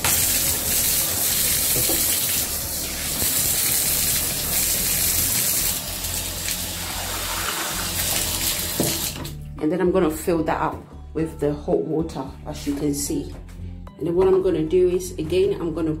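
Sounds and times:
bath tap running: 0:00.0 - 0:09.4.

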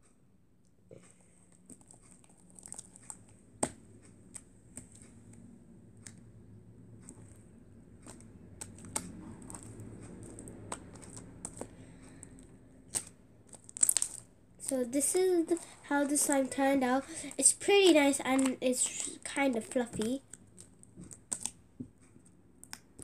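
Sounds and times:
slime crackling and popping: 0:08.0 - 0:21.6.

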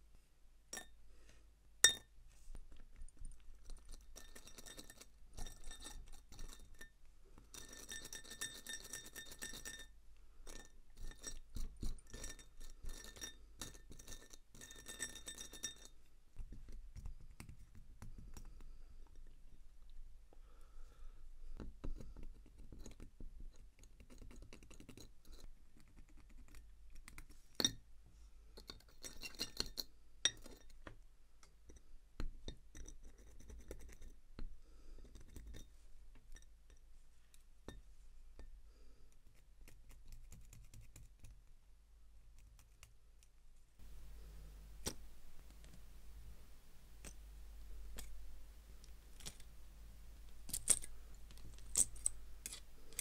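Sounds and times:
watch tools clicking and clinking: 0:50.3 - 0:53.0.

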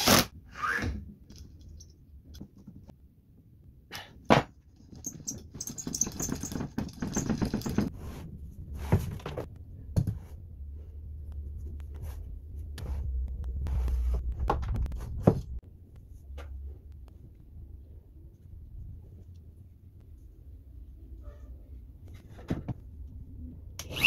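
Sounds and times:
wooden parts knocking: 0:05.0 - 0:07.9.

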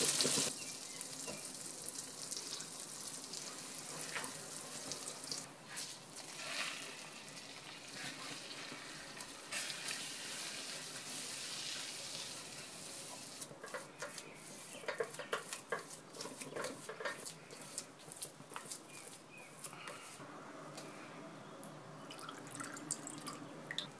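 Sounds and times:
butter sizzling in a pan: 0:00.0 - 0:05.4, 0:06.2 - 0:13.4
spatula stirring against pan: 0:07.7 - 0:20.2.

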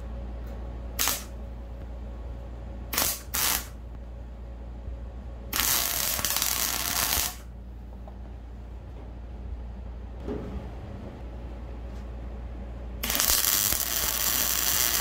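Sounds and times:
welder arc crackling: 0:01.0 - 0:01.4, 0:02.9 - 0:03.9, 0:05.5 - 0:07.5, 0:13.0 - 0:15.0.

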